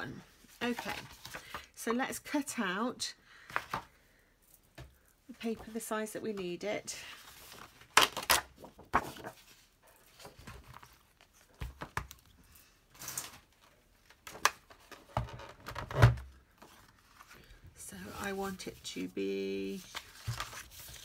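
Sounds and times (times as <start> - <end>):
paper rustling and crinkling: 0.4 - 1.7, 7.1 - 15.5, 18.1 - 21.0.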